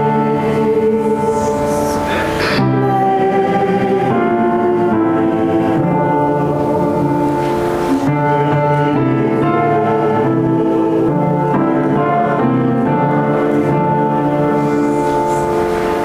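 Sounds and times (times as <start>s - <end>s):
slow keyboard chords: 0.0s - 16.0s.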